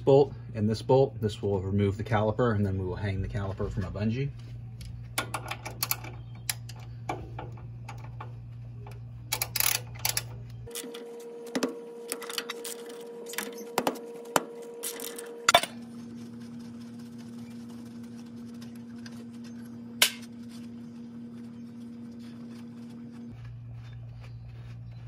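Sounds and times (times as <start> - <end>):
steady low hum: 0.0 - 25.0
ratchet clicking against steel: 9.3 - 10.8.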